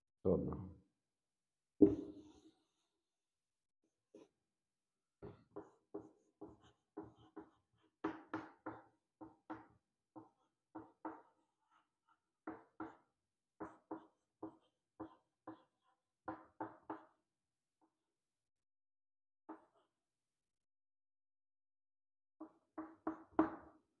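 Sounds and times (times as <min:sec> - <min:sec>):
chalk writing on chalkboard: 0:05.2 - 0:17.2, 0:19.5 - 0:19.9.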